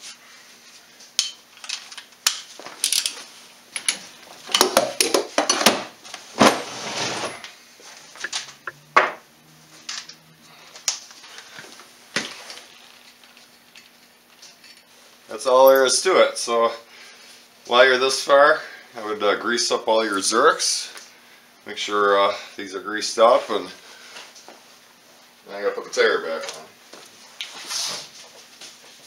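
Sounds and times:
metal tools clinking and scraping: 1.2s - 5.6s, 12.6s - 14.9s.

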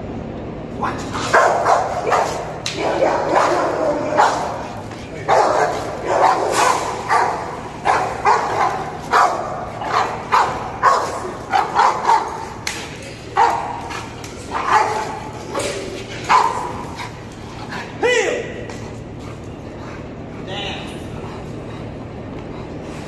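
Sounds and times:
dog barking aggressively: 0.9s - 17.2s.

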